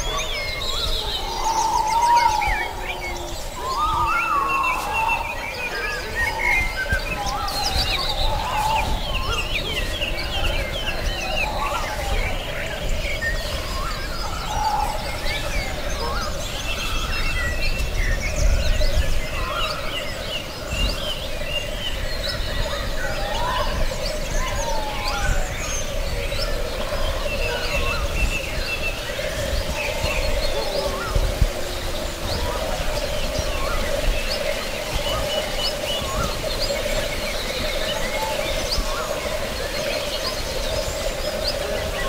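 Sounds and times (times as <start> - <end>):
birds chirping and trilling: 0.0 - 42.0.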